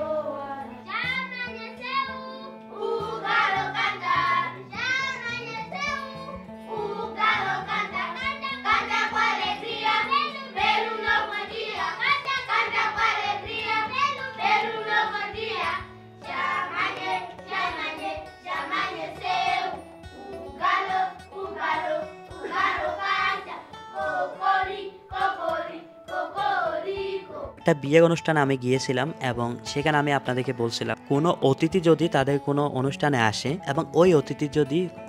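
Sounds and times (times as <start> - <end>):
children singing in chorus: 0.0 - 27.6.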